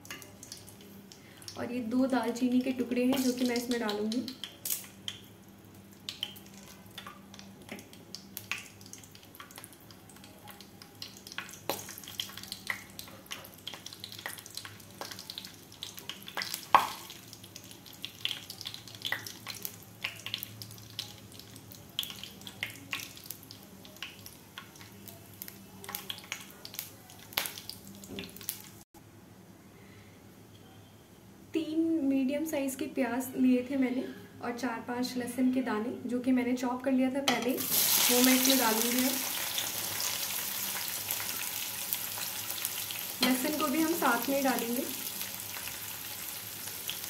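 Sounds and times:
spices sizzling in hot fat: 0:00.0 - 0:28.8, 0:37.3 - 0:47.0
sharp crackles and pops: 0:03.1 - 0:28.8.

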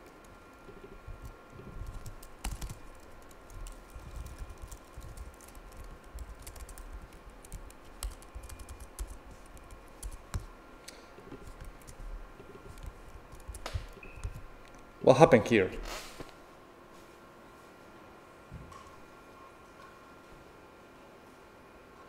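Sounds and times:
typing on computer keyboard: 0:00.2 - 0:10.5, 0:11.4 - 0:14.8.

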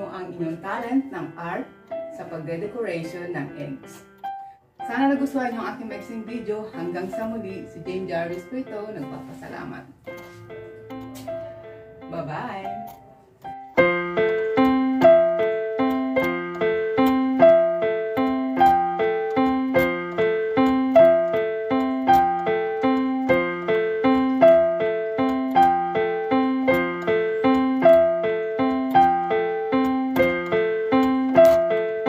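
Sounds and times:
repeating keyboard figure: 0:00.0 - 0:32.0.

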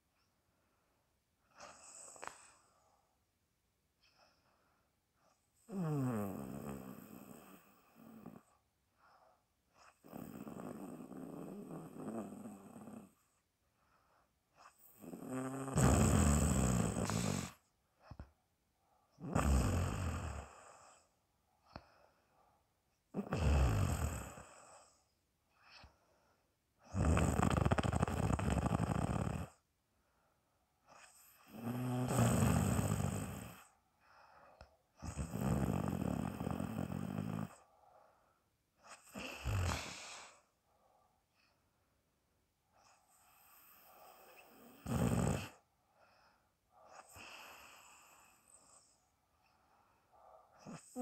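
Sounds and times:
person snoring: 0:05.6 - 0:08.5, 0:09.8 - 0:13.2, 0:14.6 - 0:17.6, 0:19.2 - 0:21.0, 0:23.1 - 0:25.0, 0:26.9 - 0:29.6, 0:31.0 - 0:33.7, 0:35.0 - 0:37.7, 0:38.9 - 0:40.5, 0:43.1 - 0:45.6, 0:50.6 - 0:51.0.

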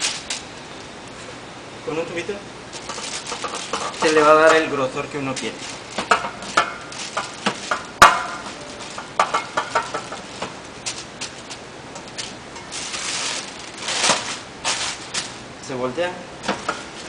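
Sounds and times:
paper sheet rustling: 0:00.0 - 0:00.5, 0:02.7 - 0:15.4.

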